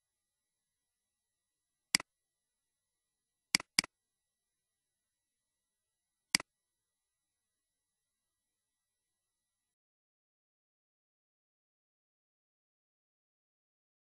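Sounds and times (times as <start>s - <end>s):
computer mouse clicks: 3.6s - 3.9s.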